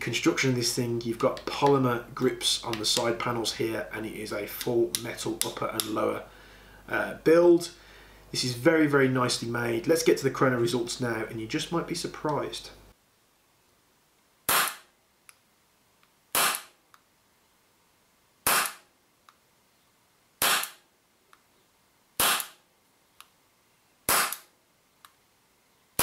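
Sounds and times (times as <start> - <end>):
airsoft pistol shots: 14.5 - 14.9, 16.3 - 16.8, 18.4 - 18.9, 20.4 - 20.8, 22.2 - 22.6, 24.1 - 24.5.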